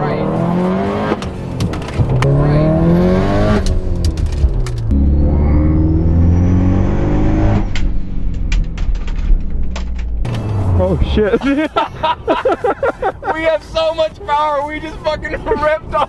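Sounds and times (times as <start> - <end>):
car engine accelerating: 0.0 - 11.5.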